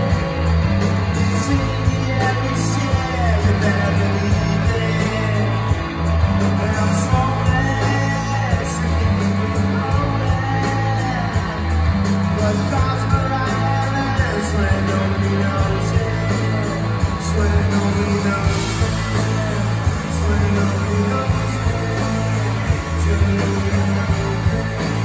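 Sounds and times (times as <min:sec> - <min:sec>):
live rock band playing: 0:00.0 - 0:25.0
person singing: 0:00.0 - 0:25.0.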